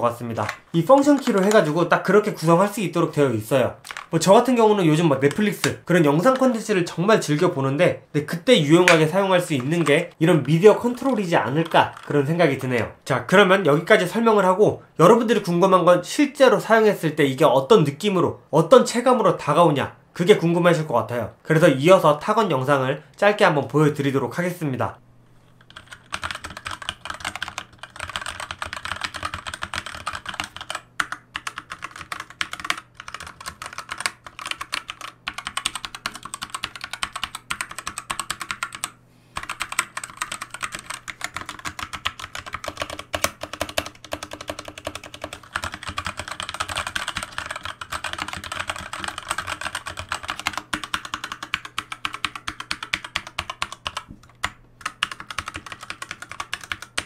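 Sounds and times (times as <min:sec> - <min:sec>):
mechanical keyboard typing: 0:00.1 - 0:02.7, 0:03.8 - 0:07.5, 0:08.7 - 0:12.7, 0:25.7 - 0:57.0.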